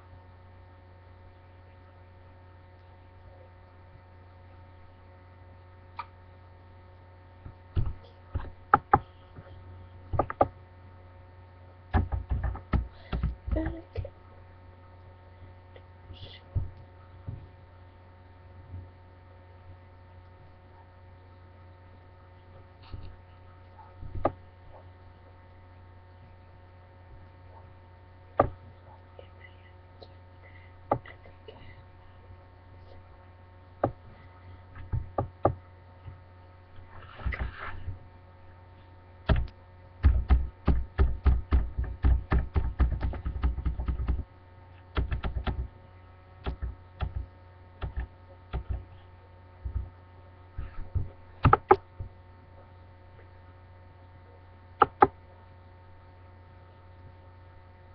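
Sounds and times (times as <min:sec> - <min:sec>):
electrical mains hum: 0:00.0 - 0:57.9
sharp taps and knocks: 0:39.3 - 0:44.2, 0:51.4 - 0:51.8.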